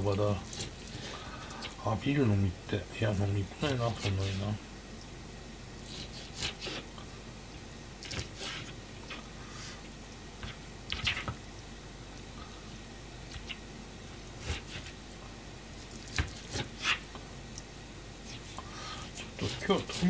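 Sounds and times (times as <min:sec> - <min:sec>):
knife cutting raw chicken: 0:03.7 - 0:04.5, 0:05.8 - 0:06.9, 0:14.4 - 0:15.0, 0:15.8 - 0:17.1, 0:18.2 - 0:20.0.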